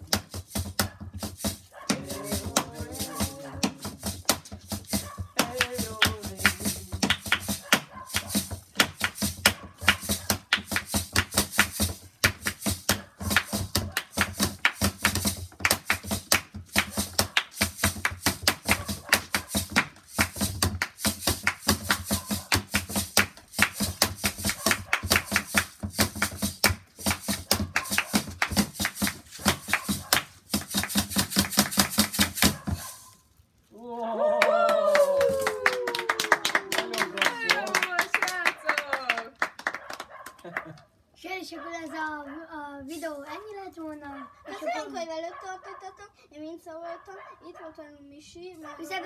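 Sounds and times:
hands drumming on plastic lid: 0.0 - 32.8.

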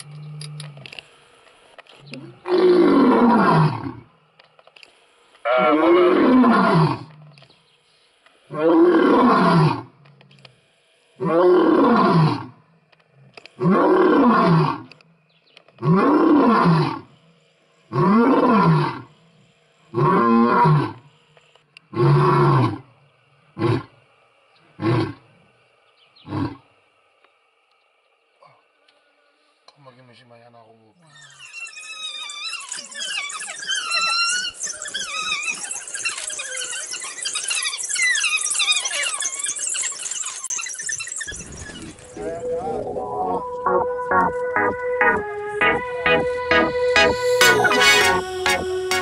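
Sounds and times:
lion roaring: 2.2 - 4.1, 5.5 - 7.4, 8.5 - 9.9, 11.2 - 12.5, 13.3 - 14.9.

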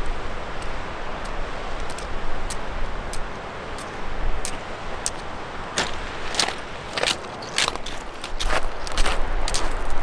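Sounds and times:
creek rushing over rocks: 0.0 - 10.0
trekking poles clicking on rock: 1.2 - 5.2, 5.8 - 10.0
boots striking rocky trail: 3.8 - 10.0.

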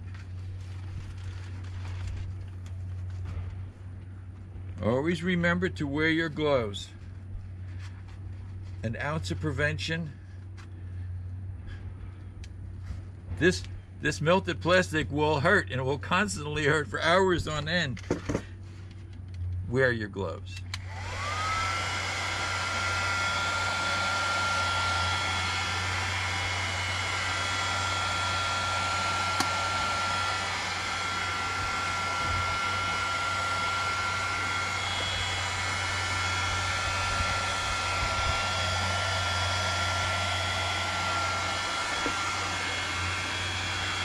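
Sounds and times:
heat gun motor whine: 20.7 - 44.0
rush of hot air: 20.8 - 44.0.

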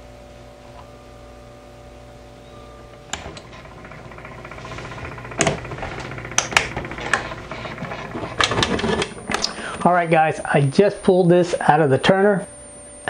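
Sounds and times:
low steady hum: 0.0 - 13.0
dense mechanical rattle: 2.9 - 9.5.

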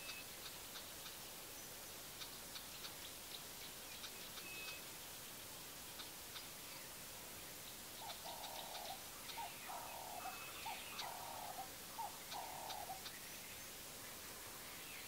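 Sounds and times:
bird calling: 2.2 - 4.8, 7.6 - 13.7
faint ticking: 5.9 - 6.5, 8.0 - 9.5.

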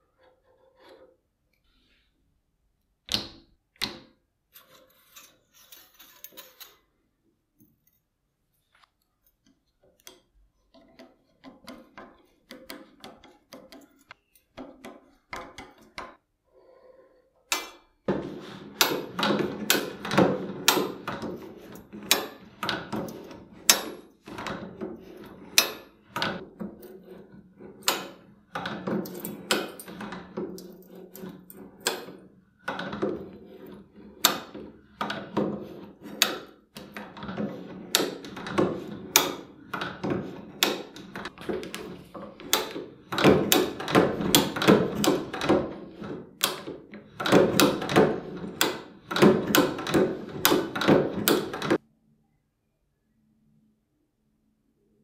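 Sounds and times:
metal tool clicking and clunking: 17.5 - 51.8.

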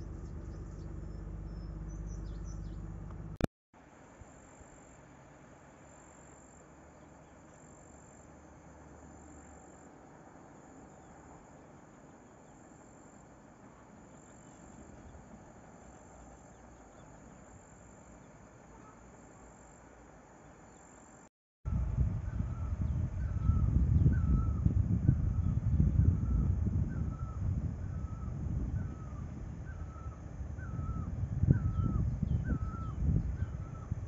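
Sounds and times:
insects trilling: 5.8 - 21.3, 22.5 - 34.0.

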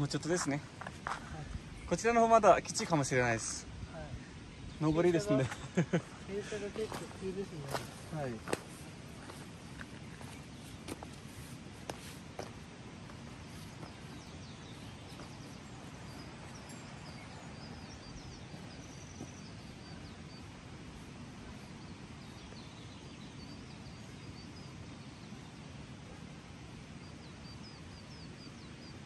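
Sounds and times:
faint high bird chirps: 13.5 - 20.6.

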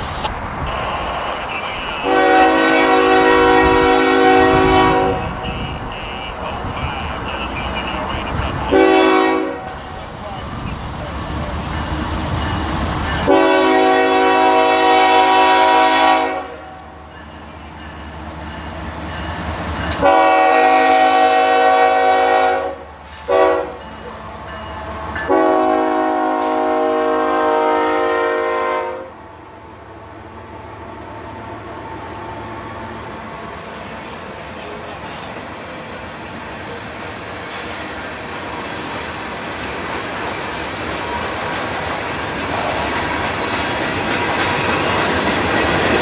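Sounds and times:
diesel engine rumbling: 0.0 - 13.4
locomotive air horn: 0.7 - 6.4, 7.6 - 9.8, 13.2 - 16.8, 20.0 - 23.8, 25.2 - 29.2.

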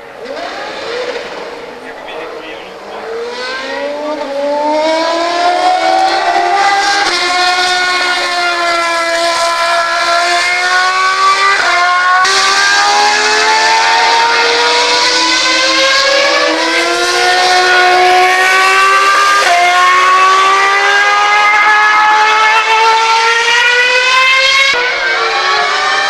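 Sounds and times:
racing car engine at high revs: 0.0 - 26.0.

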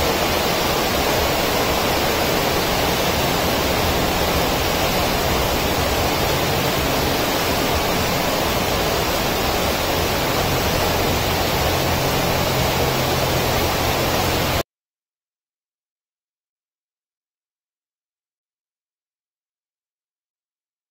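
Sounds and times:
steady rushing noise: 0.0 - 14.6.

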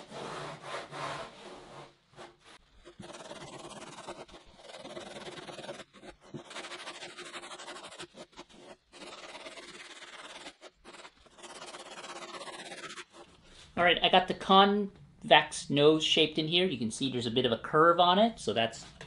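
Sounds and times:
sanding block scratching foam: 0.0 - 1.9, 2.8 - 13.3.

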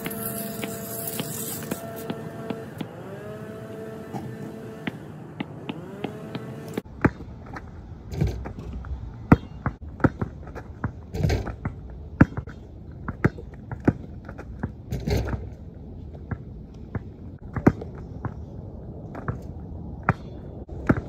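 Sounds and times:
sneaker scuffs and thuds: 0.0 - 3.0, 3.7 - 18.4
basketball bouncing on plastic tiles: 20.1 - 21.0.

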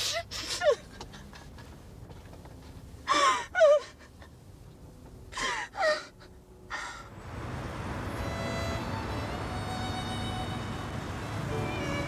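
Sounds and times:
woman sobbing: 0.0 - 1.6, 3.1 - 4.4, 5.4 - 6.9.

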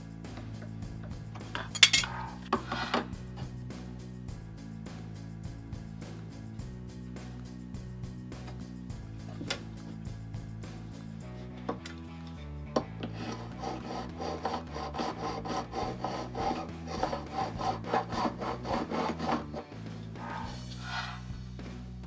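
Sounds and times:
file rasping on metal frets: 13.0 - 21.4.

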